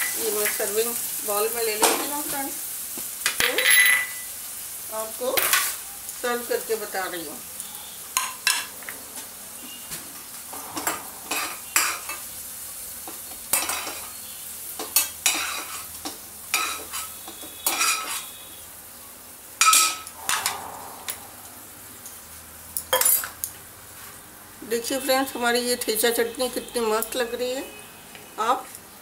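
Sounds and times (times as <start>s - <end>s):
spoon scraping metal pan: 10.6s - 12.2s, 16.5s - 18.4s.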